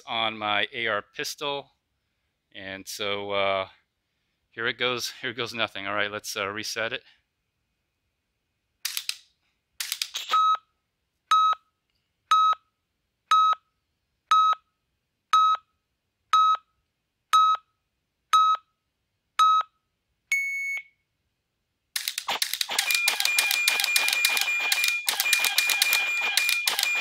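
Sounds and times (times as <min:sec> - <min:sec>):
electronic countdown beeps: 0:10.3 - 0:10.6, 0:11.3 - 0:11.6, 0:12.3 - 0:12.6, 0:13.3 - 0:13.6, 0:14.3 - 0:14.7, 0:15.3 - 0:15.7, 0:16.3 - 0:16.7, 0:17.3 - 0:17.7, 0:18.3 - 0:18.7, 0:19.4 - 0:20.9, 0:22.7 - 0:27.0
long high beep: 0:22.7 - 0:27.0.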